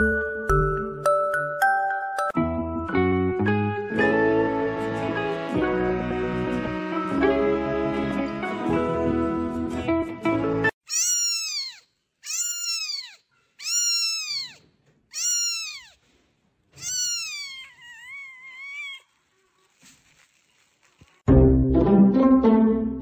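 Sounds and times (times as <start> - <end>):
background music: 0.0 - 10.7, 21.3 - 23.0
cat meowing: 10.9 - 16.0, 16.8 - 19.2.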